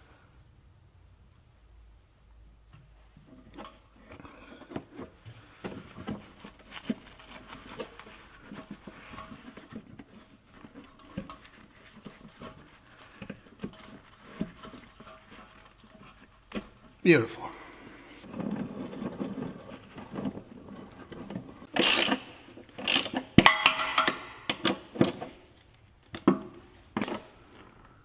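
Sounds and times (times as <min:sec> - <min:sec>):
rubber hanger worked onto metal rod: 0:06.0 - 0:17.0, 0:18.2 - 0:25.0.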